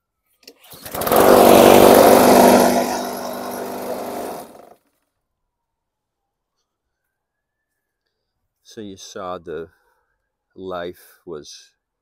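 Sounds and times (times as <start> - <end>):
lawn mower engine running: 0.6 - 4.8.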